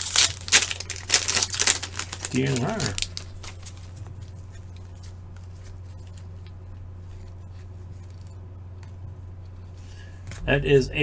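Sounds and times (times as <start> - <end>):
foil wrapper rustling: 0.0 - 8.4
trading cards rustling: 0.0 - 10.4
steady low hum: 0.0 - 11.0.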